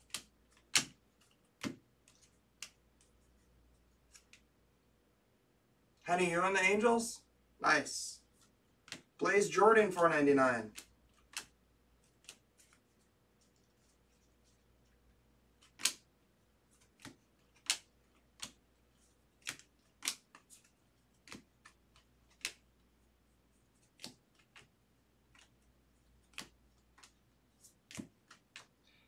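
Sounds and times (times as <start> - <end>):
cards being flipped: 0.0 - 3.4, 4.0 - 4.5, 8.3 - 9.2, 10.7 - 14.7, 15.6 - 16.1, 16.7 - 22.7, 23.7 - 28.8.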